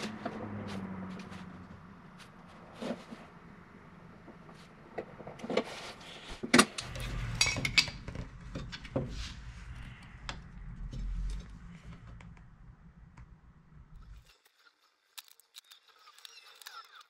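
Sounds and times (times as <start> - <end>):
low steady hum: 6.6 - 14.3.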